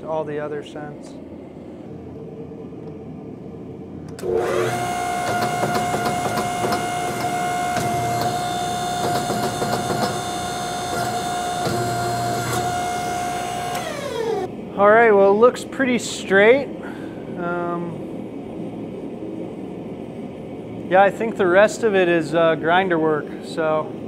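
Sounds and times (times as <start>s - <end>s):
hydraulic pump whining: 4.2s - 14.5s.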